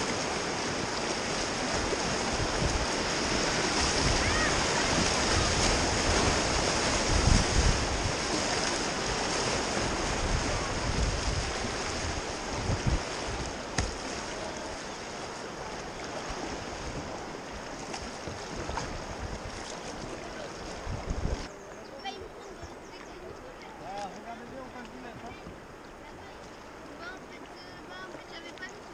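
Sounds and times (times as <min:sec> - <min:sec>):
wind buffeting microphone: 0:00.0 - 0:14.8, 0:16.0 - 0:21.5
whitewater rushing: 0:00.0 - 0:21.4.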